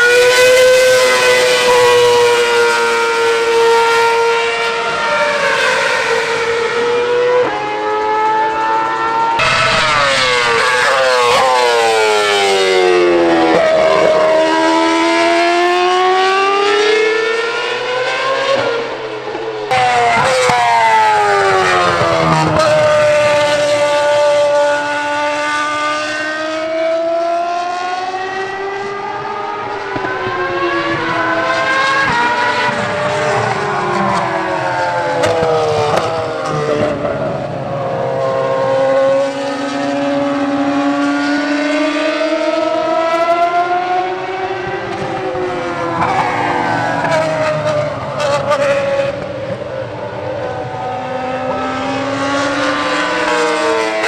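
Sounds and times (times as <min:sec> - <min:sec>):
racing cars passing at high revs: 0:00.0 - 0:54.0.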